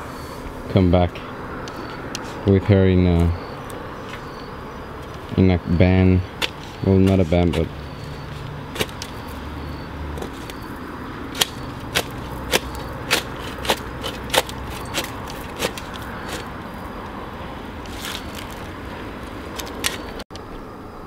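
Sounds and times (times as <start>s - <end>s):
faint high insect tone: 3.1s - 7.0s, 20.4s - 21.0s
digging tool striking stony ground: 6.4s - 9.4s, 10.2s - 16.6s.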